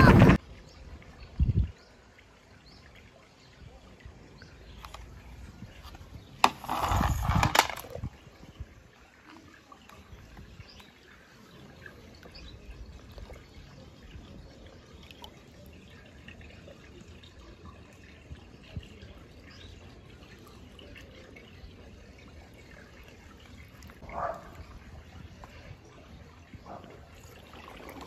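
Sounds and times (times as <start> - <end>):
toy car splashing into water: 6.2 - 8.2
faint dripping: 8.4 - 28.0.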